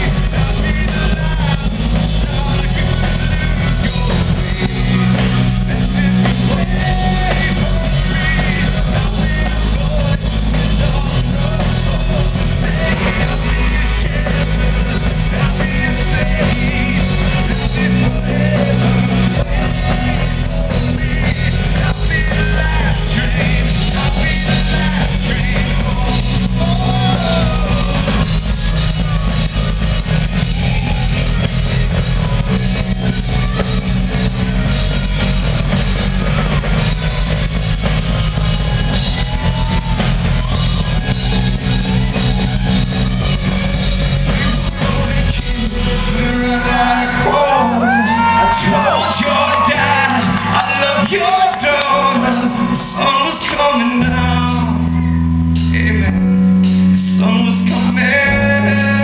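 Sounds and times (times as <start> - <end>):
man singing: 0.0 - 29.7, 44.0 - 59.0
rock band playing loud: 0.0 - 59.0.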